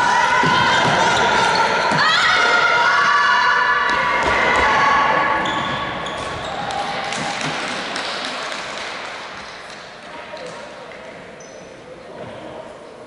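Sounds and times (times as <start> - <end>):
players shouting and cheering: 0.0 - 8.3
shoe squeaks: 5.3 - 6.7, 11.4 - 12.5.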